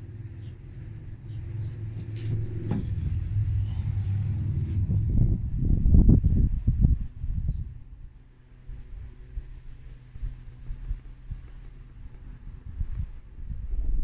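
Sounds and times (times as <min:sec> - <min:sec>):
camera handling rumble: 0:01.9 - 0:05.3
knocks and bumps: 0:02.2 - 0:05.4.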